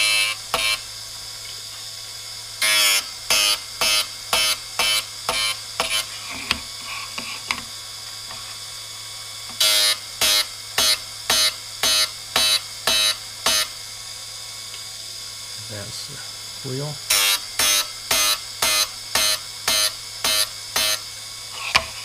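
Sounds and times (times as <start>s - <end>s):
drill bit grinding screech: 0.0s - 0.8s, 2.6s - 7.2s, 9.6s - 13.7s, 16.7s - 22.0s
grinder motor humming: 0.0s - 22.0s.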